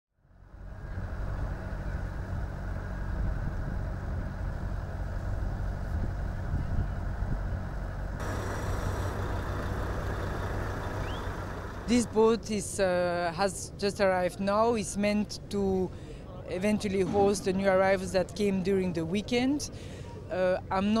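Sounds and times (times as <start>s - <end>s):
low outdoor rumble by sea: 0.2s - 12.5s.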